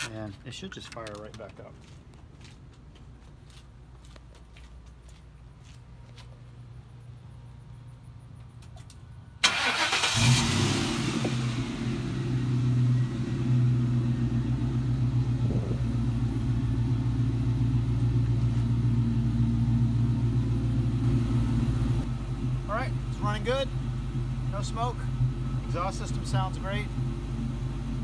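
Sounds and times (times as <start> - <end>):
car engine idling: 6.4 - 28.0
car starter cranking: 9.4 - 11.6.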